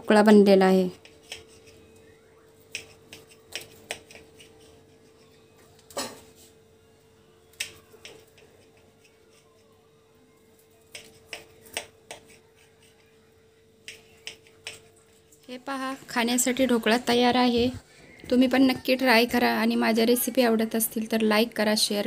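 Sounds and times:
knife tapping against plate: 2.7s - 4.6s, 7.5s - 9.4s, 10.9s - 12.9s, 13.8s - 14.9s.

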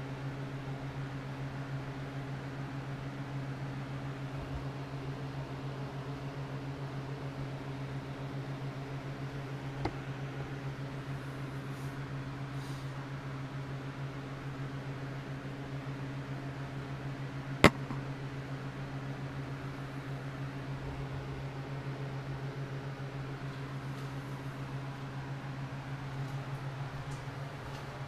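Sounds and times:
sharp click: 17.6s - 18.0s.

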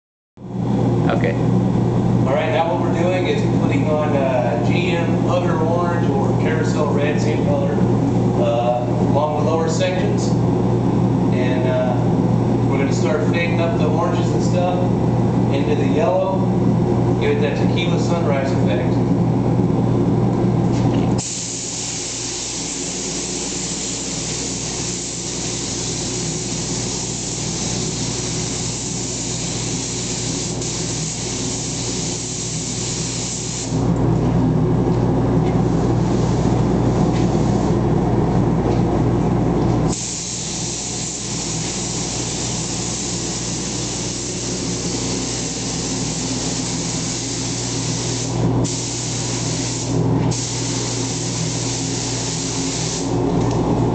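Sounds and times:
paint spray gun hissing: 21.2s - 33.8s, 39.9s - 53.1s.

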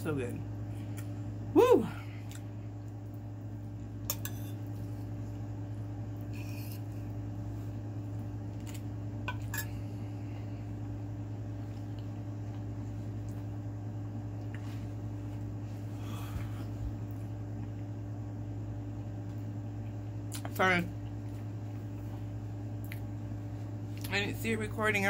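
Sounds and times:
steady low hum: 0.0s - 25.0s
metal fork scraping a plate: 4.1s - 4.6s.

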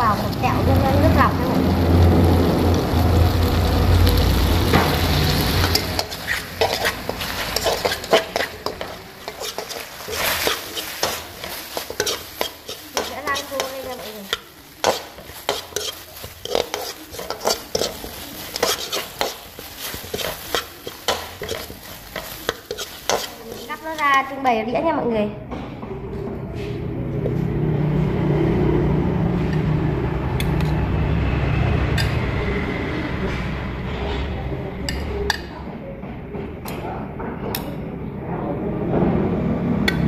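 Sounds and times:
soft sizzle: 0.0s - 25.1s
metal utensils scraping a wok: 4.1s - 24.8s, 29.4s - 31.0s, 31.8s - 32.4s.

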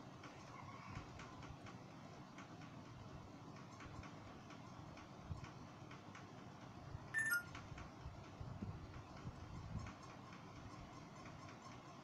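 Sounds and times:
two-note squeak: 7.2s - 7.5s.

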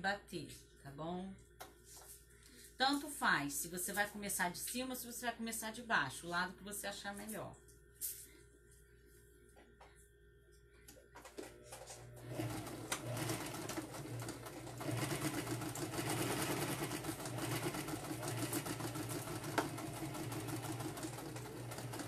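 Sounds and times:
sewing machine stitching: 11.7s - 22.0s.

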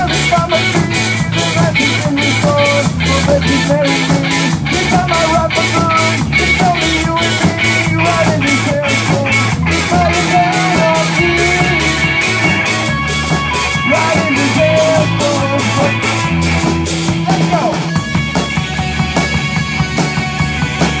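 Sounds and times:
drum kit fast beat: 0.0s - 21.0s
guitars: 0.0s - 21.0s.

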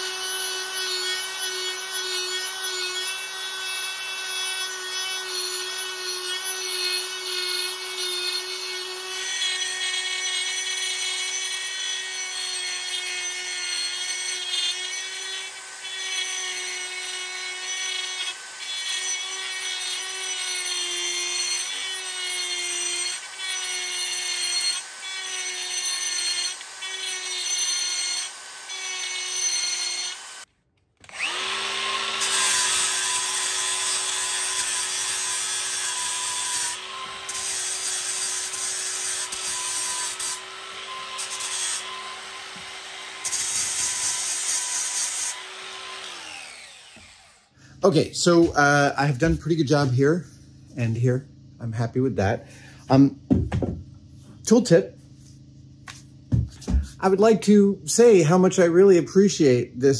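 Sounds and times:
die grinder whining on metal: 0.0s - 47.6s.

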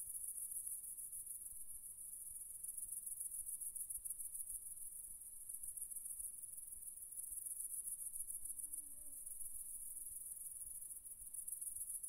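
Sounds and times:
insects stridulating: 0.2s - 12.0s.

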